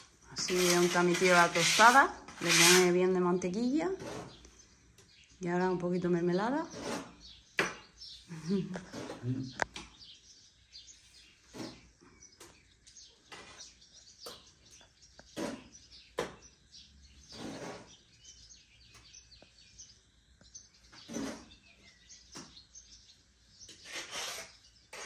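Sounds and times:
birds chirping: 0.0s - 25.0s
knife scraping over toast: 0.4s - 2.9s, 8.8s - 9.4s, 11.2s - 11.9s, 17.2s - 18.1s, 21.0s - 21.7s, 23.7s - 25.0s.

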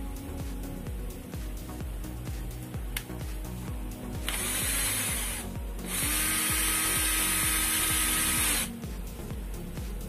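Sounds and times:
cordless drill motor whine: 4.2s - 8.8s.

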